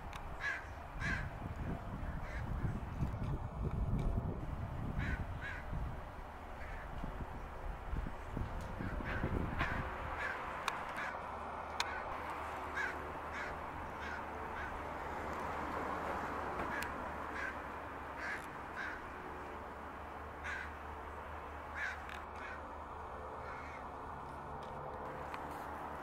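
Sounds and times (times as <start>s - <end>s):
steady background noise: 0.0s - 26.0s
crow cawing: 0.4s - 1.3s, 2.2s - 2.5s, 5.0s - 5.7s, 6.6s - 6.9s, 8.8s - 11.2s, 11.8s - 12.1s, 12.7s - 14.8s, 16.7s - 17.6s, 18.2s - 19.1s, 20.4s - 20.8s, 21.7s - 22.7s, 23.4s - 23.9s.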